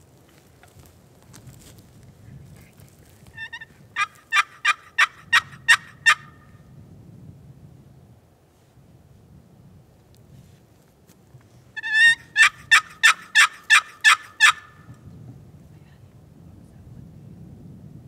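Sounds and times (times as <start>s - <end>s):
turkey call yelps: 3.4s - 6.4s, 11.8s - 14.8s.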